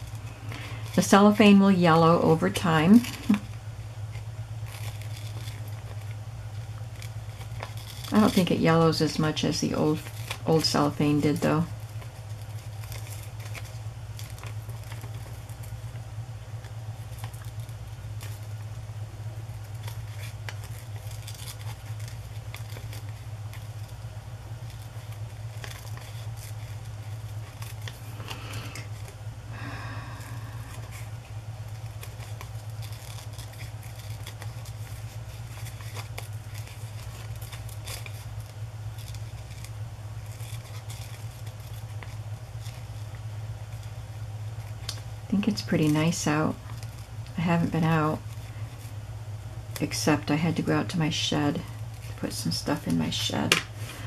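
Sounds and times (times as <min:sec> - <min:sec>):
paper rustling: 0:00.0 - 0:16.0, 0:19.5 - 0:24.0, 0:24.6 - 0:29.2, 0:30.2 - 0:49.0
steady low hum: 0:00.0 - 0:54.0
scissors snipping paper: 0:06.9 - 0:15.8, 0:19.6 - 0:24.0, 0:31.7 - 0:44.0.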